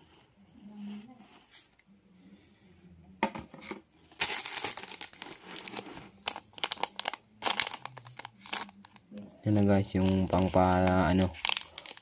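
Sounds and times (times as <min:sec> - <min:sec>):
foil sachet crinkling: 0:04.2 - 0:12.0
foil tearing open: 0:10.0 - 0:12.0.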